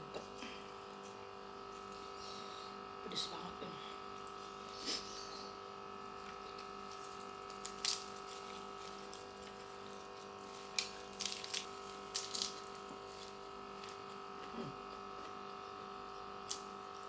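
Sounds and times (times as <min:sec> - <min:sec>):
steady hum: 0:00.0 - 0:17.0
lettuce leaves crackling: 0:06.0 - 0:14.3.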